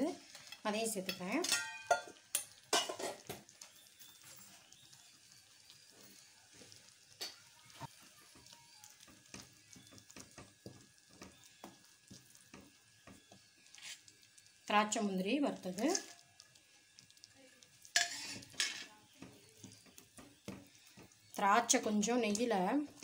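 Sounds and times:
faint sizzle: 0.0s - 23.0s
thick mixture bubbling: 1.8s - 23.0s
wooden spatula scraping metal pan: 12.5s - 14.1s, 17.9s - 21.1s.

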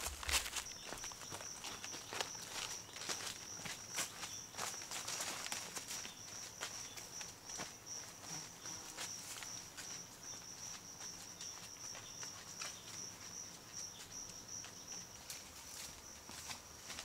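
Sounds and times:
footsteps on dry leaves: 0.0s - 7.8s
insect chirping in pulsing trill: 0.0s - 17.0s.

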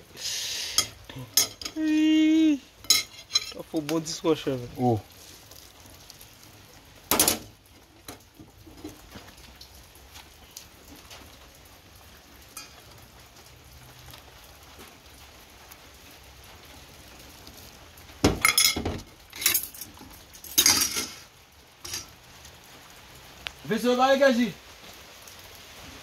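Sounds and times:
dishes clattering in steel basin: 0.8s - 1.8s, 2.9s - 3.6s, 18.3s - 19.7s, 20.6s - 21.2s.

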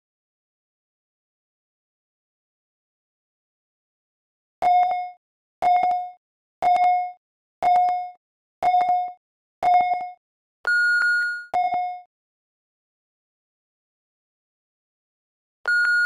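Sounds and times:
long high-pitched beep: 4.7s - 12.1s, 15.7s - 16.0s
short electronic beeps: 10.7s - 12.0s, 15.7s - 16.0s.

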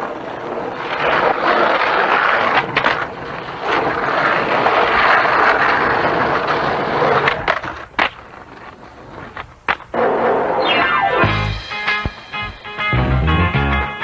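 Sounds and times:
skateboard clacks: 0.0s - 10.6s
skateboard wheels rolling on concrete: 0.0s - 14.0s.

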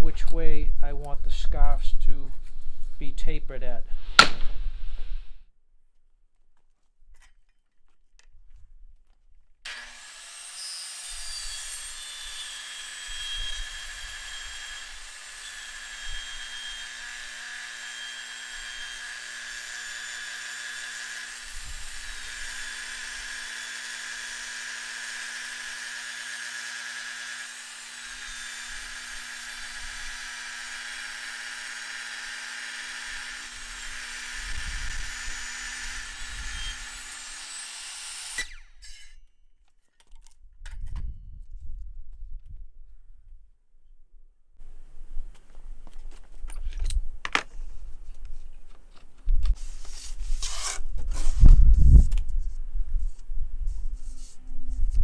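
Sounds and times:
circular saw cutting: 9.7s - 39.3s.

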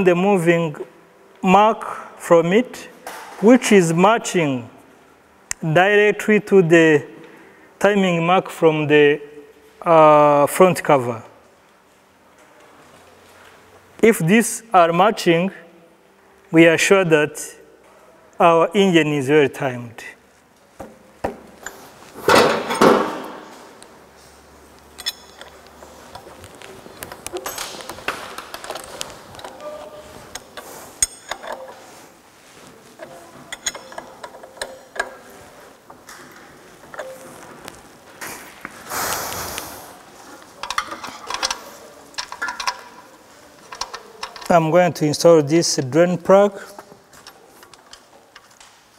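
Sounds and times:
metal hand tools clinking: 24.9s - 25.8s, 31.0s - 31.8s, 33.5s - 35.2s
metal parts clinking: 24.9s - 29.6s, 30.3s - 31.9s, 33.0s - 35.3s, 40.6s - 44.5s.

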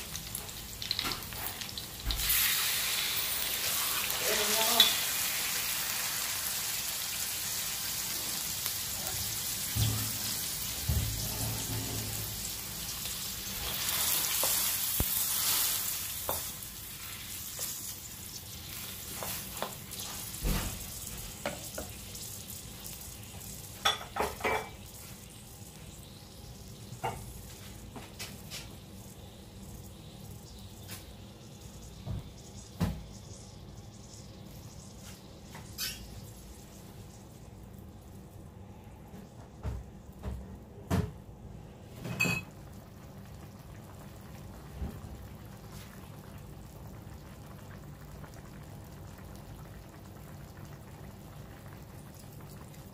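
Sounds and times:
meat sizzling in oil: 0.0s - 38.3s.

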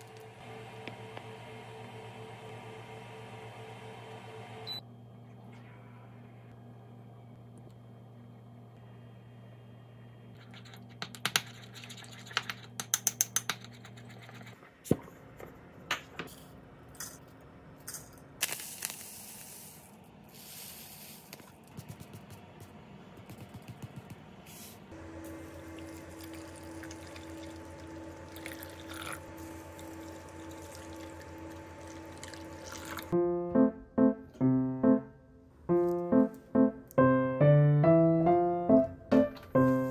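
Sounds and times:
short hissing bursts: 18.4s - 21.3s
low steady hum: 21.3s - 39.8s.

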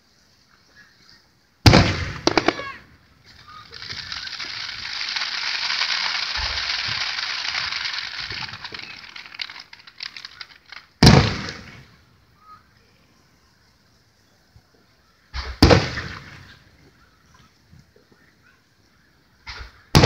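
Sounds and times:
fireworks crackling: 1.6s - 12.5s, 15.2s - 18.3s, 19.3s - 20.0s
firework shell burst: 3.4s - 11.8s.

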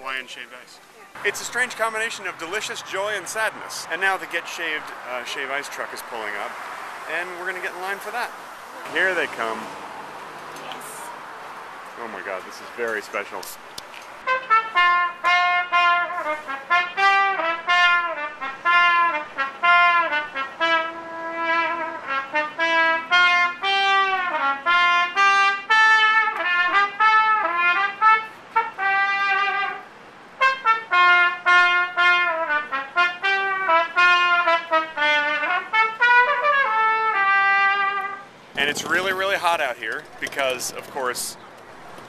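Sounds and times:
solo trumpet slow melody: 14.2s - 38.3s.

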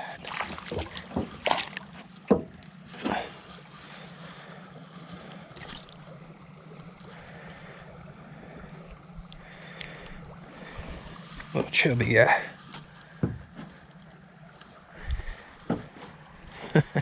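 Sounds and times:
fish splash: 0.0s - 2.1s, 5.4s - 7.8s
low steady hum: 0.0s - 17.0s
water and wind noise: 0.0s - 17.0s
knock on boat: 2.2s - 2.6s, 13.2s - 13.7s, 15.6s - 16.0s.

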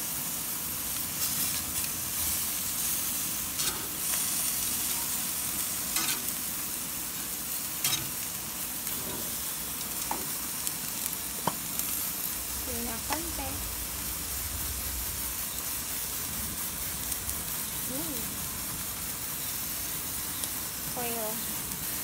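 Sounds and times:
chicken sizzling on a grill: 0.0s - 22.0s
metal tongs clicking and scraping: 3.6s - 3.9s, 6.0s - 6.3s, 7.8s - 8.2s.

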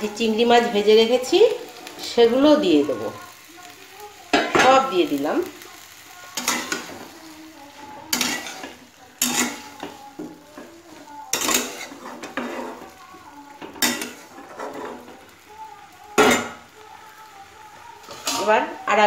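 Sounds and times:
metal spatula scraping pan: 6.4s - 10.0s, 11.3s - 13.0s, 13.8s - 15.2s.

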